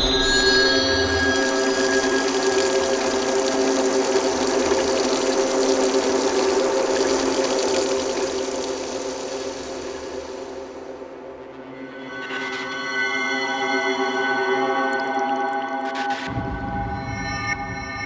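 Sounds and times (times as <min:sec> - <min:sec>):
water running from a tap: 0:01.3 - 0:10.3.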